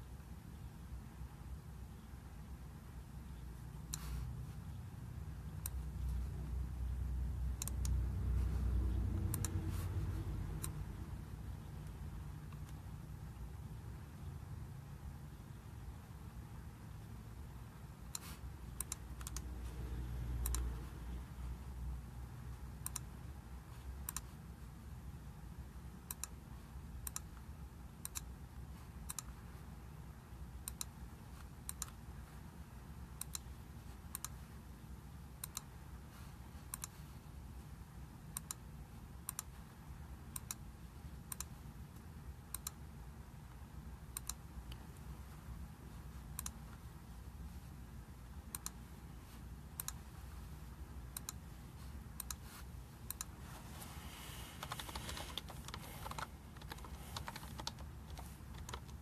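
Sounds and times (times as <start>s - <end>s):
low steady hum: 0.0s - 59.0s
computer keyboard clicking: 18.1s - 19.5s, 24.0s - 24.3s, 54.6s - 59.0s.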